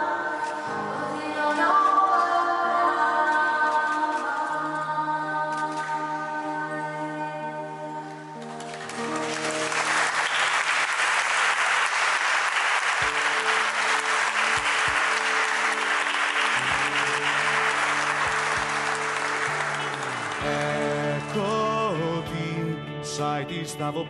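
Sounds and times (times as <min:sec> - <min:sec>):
soft slow instrumental music: 0:00.0 - 0:24.0
people applauding: 0:08.4 - 0:22.1.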